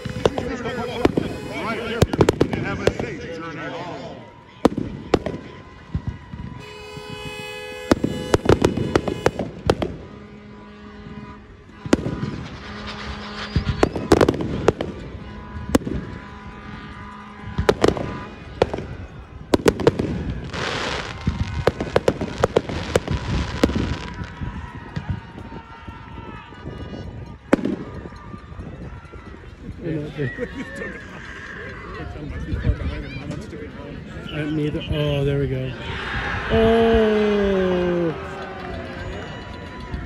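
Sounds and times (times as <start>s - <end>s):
fireworks bangs: 0.0s - 3.6s, 4.6s - 25.7s, 27.4s - 28.4s
crackling fireworks: 0.0s - 31.4s.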